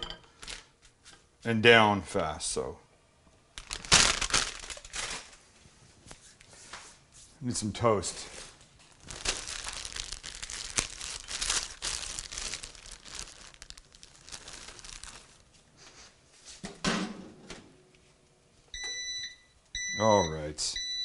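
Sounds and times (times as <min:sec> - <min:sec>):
plastic bread bag rustling: 0:03.6 - 0:07.1, 0:08.0 - 0:15.9.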